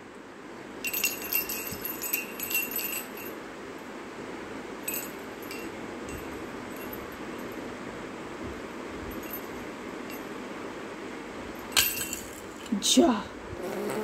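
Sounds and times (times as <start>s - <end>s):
wooden rattle toy jingling: 0.8s - 3.4s.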